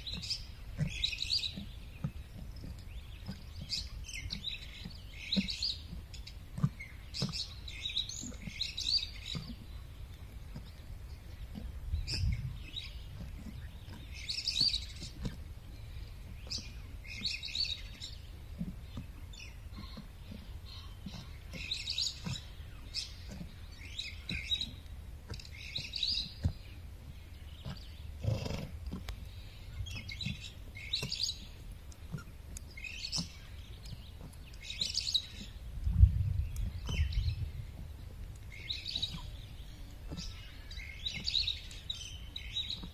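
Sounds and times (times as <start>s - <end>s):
songbirds chirping: 0.0s - 42.9s
low rumble: 35.4s - 41.3s.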